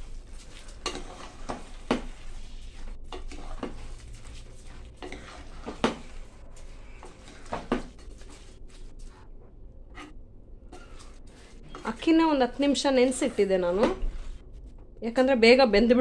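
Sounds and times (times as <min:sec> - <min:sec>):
wet rice rustling: 0:00.0 - 0:09.4, 0:10.8 - 0:14.5
metal spoon scraping pot: 0:00.6 - 0:02.2, 0:03.1 - 0:04.0, 0:04.9 - 0:06.2, 0:09.9 - 0:14.3.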